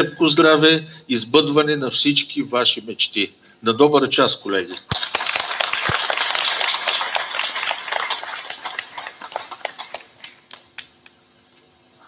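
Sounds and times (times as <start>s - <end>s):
crowd applauding: 4.9s - 11.0s.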